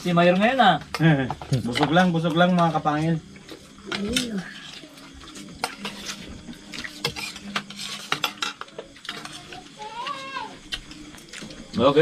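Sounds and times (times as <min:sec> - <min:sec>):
cutlery clinking on plates: 0:05.6 - 0:09.4.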